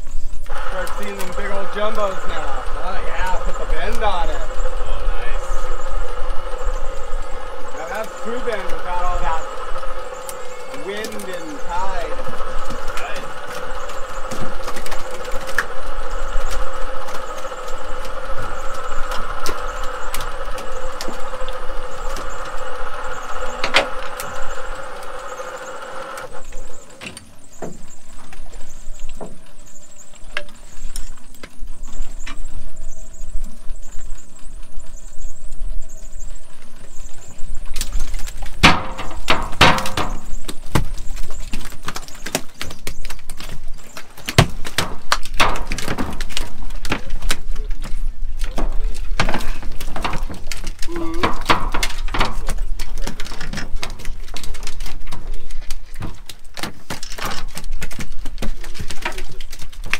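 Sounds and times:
electric fishing reel whining: 0:00.4 - 0:27.2.

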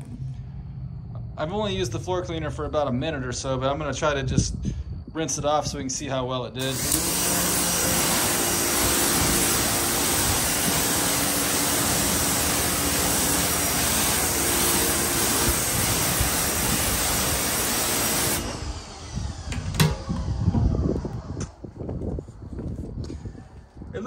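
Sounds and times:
pressure washer spraying concrete: 0:06.6 - 0:19.1
motor hum: 0:06.6 - 0:21.6
knocks: 0:19.5 - 0:20.1.

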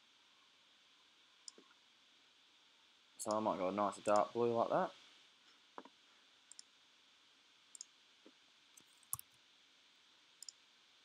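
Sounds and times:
computer mouse clicks: 0:06.5 - 0:06.7, 0:07.7 - 0:07.9, 0:08.8 - 0:09.3, 0:10.4 - 0:10.6.

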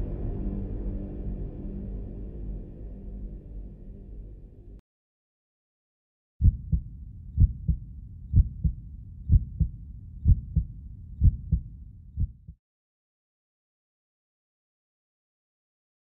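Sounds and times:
heartbeat thumps: 0:06.4 - 0:12.6.

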